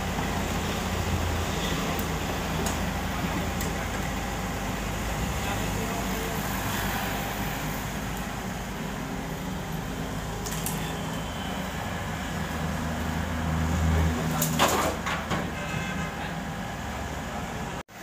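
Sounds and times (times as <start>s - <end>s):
excavator diesel engine droning: 0.0s - 18.0s
rubble clattering into truck bed: 14.4s - 15.6s.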